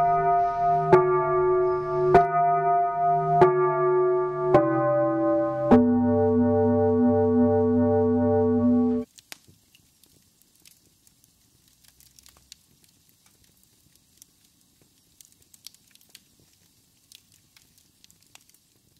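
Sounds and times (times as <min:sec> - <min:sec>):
faint crackling clicks: 0:09.0 - 0:18.9.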